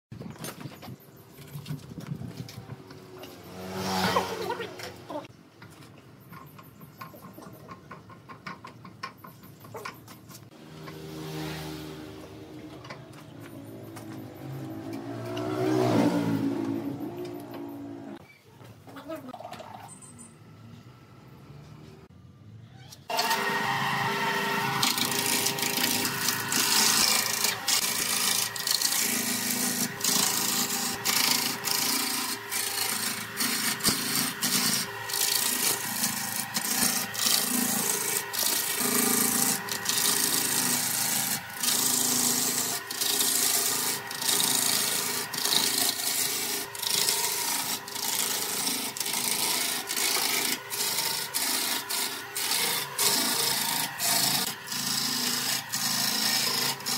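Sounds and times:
turning tool scraping wood: 0.8s - 5.3s, 23.2s - 56.9s
wood lathe motor hum: 23.1s - 56.9s.

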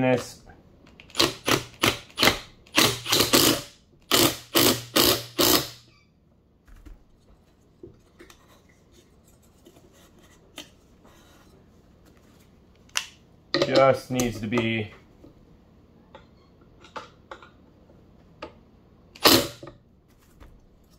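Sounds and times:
parts clicking and knocking: 16.2s - 17.6s.

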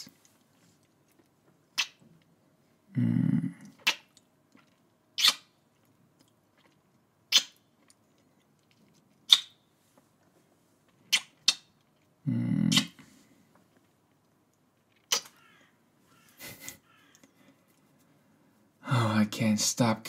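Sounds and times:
wet lip smacks: 0.1s - 2.1s, 3.6s - 9.6s, 11.1s - 12.1s, 12.7s - 13.0s, 14.9s - 15.4s
short low hum of voice: 2.9s - 3.7s, 12.2s - 13.0s.

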